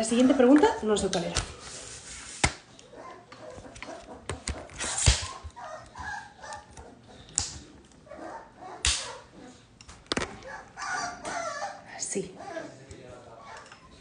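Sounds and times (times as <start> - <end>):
puppies whimpering and crying: 2.8 - 7.3, 8.1 - 14.0.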